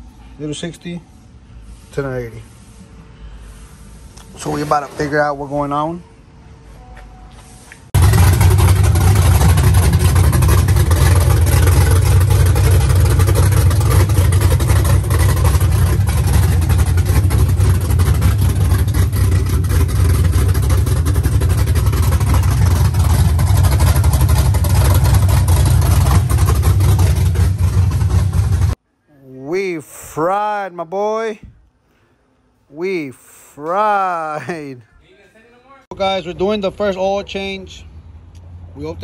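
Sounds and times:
pickup truck engine idling: 8.0 - 28.8.

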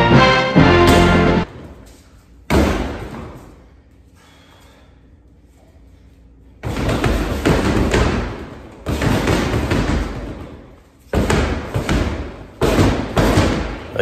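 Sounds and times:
gloved punches on heavy bag: 2.5 - 3.4, 6.6 - 13.9.

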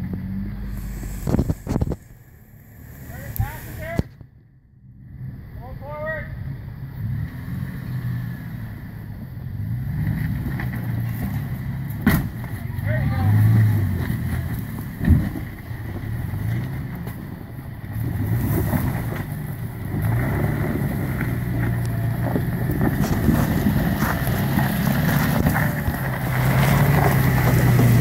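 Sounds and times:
engine running at low revs: 0.0 - 28.0
tyres knocking and crunching on rock: 14.1 - 16.1, 21.3 - 28.0.

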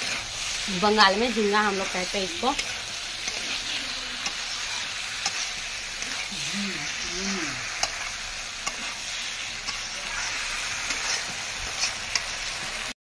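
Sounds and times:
curry sizzling in hot oil: 0.0 - 13.0
spatula clicking against pan: 7.8 - 8.0, 8.6 - 8.8.

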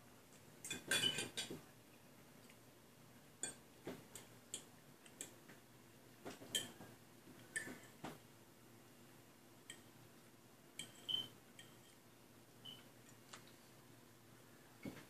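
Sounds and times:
forks clinking on plates: 0.7 - 1.6.

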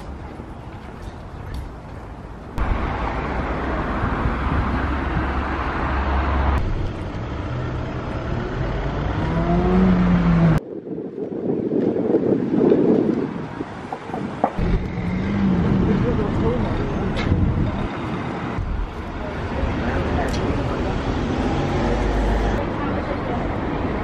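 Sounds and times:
city street traffic: 0.0 - 24.0
vehicle engine accelerating: 2.6 - 10.6, 14.6 - 17.8.

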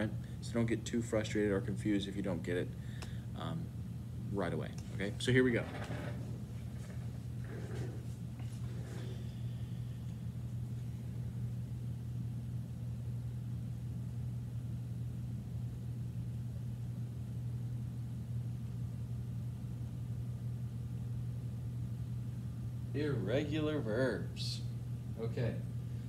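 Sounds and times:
room machinery hum: 0.0 - 26.0.

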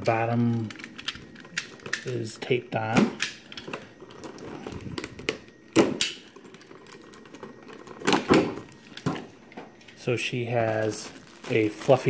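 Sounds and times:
sharp plastic cracks: 5.0 - 6.2
plastic packaging crackling: 6.1 - 9.3, 10.0 - 12.0.

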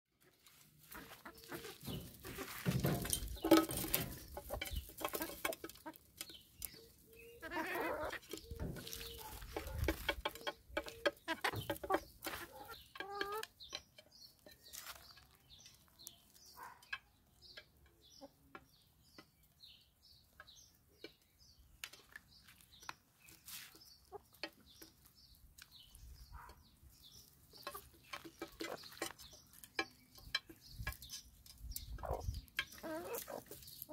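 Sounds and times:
hens clucking: 0.2 - 13.9, 27.2 - 31.2, 31.8 - 33.9.

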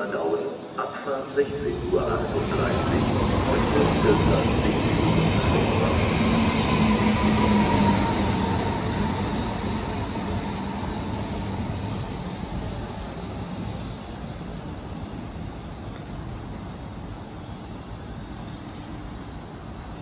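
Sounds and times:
train wheels rushing on rail: 0.2 - 20.0
train motor hum and whine: 0.8 - 14.2.

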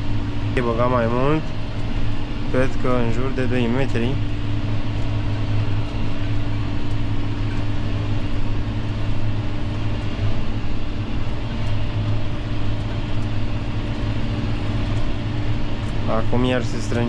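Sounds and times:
tractor engine droning: 0.0 - 17.0.

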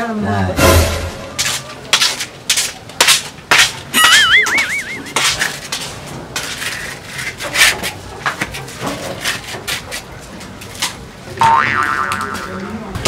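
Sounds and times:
warbling comic sound effect: 4.0 - 5.2.

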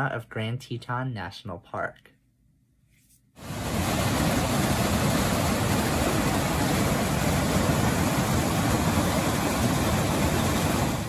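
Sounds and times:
water rushing over rocks: 3.4 - 11.0.

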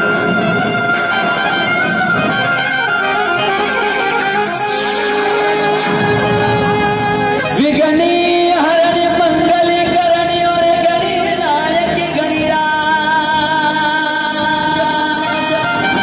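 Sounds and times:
instrumental accompaniment: 0.0 - 16.0.

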